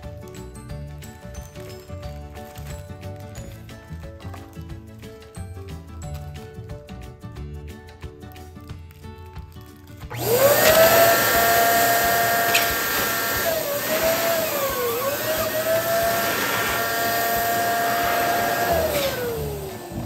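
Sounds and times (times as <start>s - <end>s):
electric balloon pump whining: 10.1s - 20.0s.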